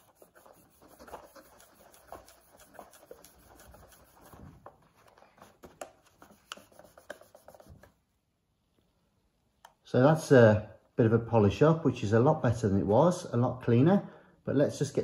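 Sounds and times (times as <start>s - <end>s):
cloth rubbing on plastic: 0.0s - 8.0s.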